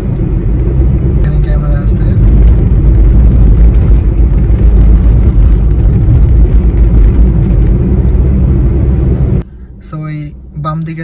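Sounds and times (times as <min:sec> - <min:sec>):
car engine and road noise: 0:00.0 - 0:11.0.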